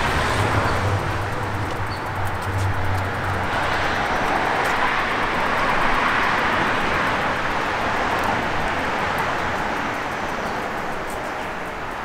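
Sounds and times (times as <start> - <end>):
vehicle passing on wet street: 0.0 - 11.0.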